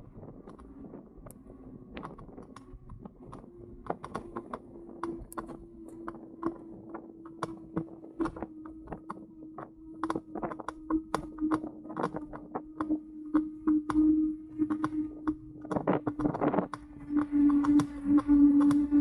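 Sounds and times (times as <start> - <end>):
steady hum: 0.0 - 19.0
e-bike ticking and rattling: 0.1 - 9.2, 14.6 - 19.0.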